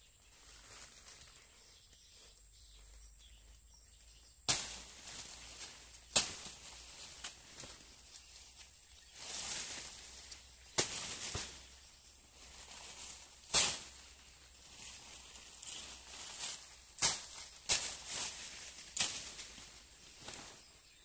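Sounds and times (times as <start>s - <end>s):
dry leaves rustling: 0.0s - 21.0s
chopping strikes into plants: 4.4s - 7.8s, 10.6s - 11.7s, 13.4s - 14.0s, 15.7s - 19.7s.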